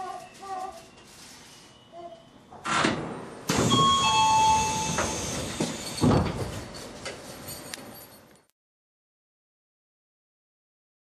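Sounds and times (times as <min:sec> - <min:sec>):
train thump: 0:02.7 - 0:06.7
steady ringing tones: 0:03.5 - 0:05.2
train air brake hiss: 0:03.6 - 0:06.1.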